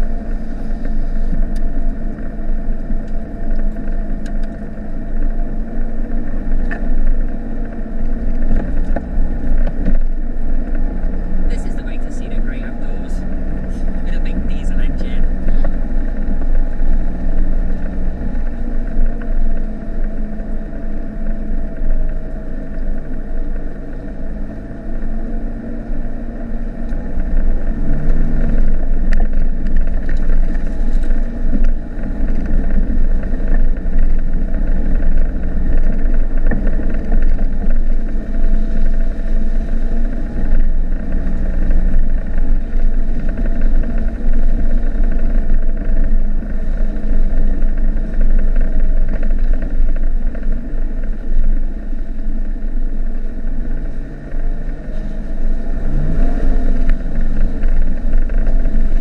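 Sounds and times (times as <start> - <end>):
road rumble: 0.0 - 59.0
van engine drone: 0.0 - 59.0.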